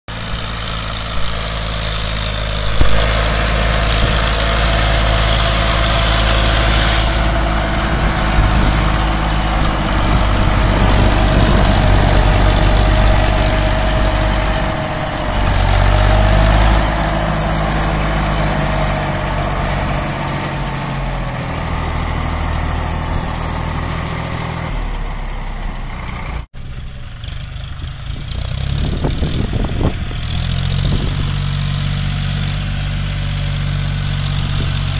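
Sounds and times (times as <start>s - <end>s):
diesel tractor engines under load: 0.1s - 34.9s.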